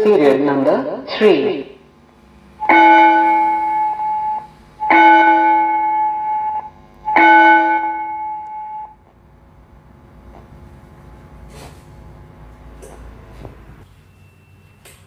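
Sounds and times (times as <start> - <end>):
gong-style bell through speaker: 2.6 - 9.0.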